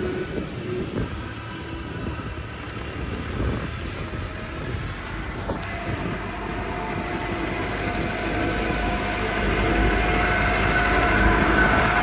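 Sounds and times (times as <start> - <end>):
diesel tractors rumbling: 0.0 - 12.0
thin high steady note: 5.8 - 12.0.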